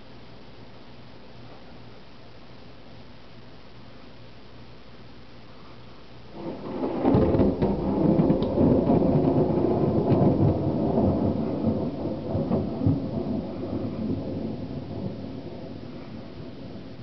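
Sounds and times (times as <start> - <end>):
crackling thunder rumble: 6.3 - 17.0.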